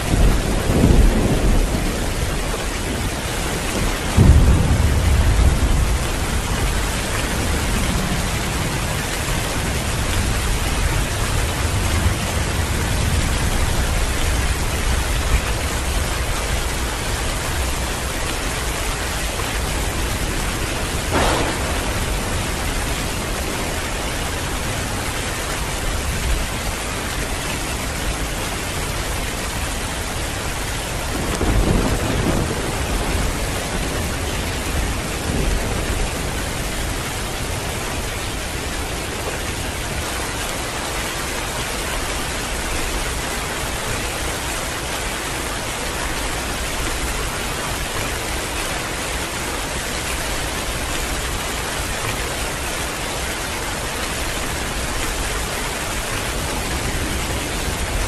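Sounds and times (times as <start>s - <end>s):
thunder rumbling: 0.0s - 40.1s
heavy rain falling: 0.0s - 58.0s
sharp crack: 21.1s - 24.2s.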